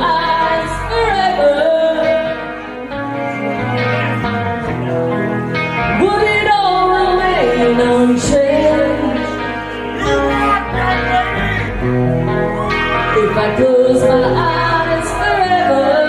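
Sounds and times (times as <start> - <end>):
woman singing: 0.0 - 2.6, 5.8 - 11.5, 12.7 - 16.0
rock band with electric guitar: 0.0 - 16.0.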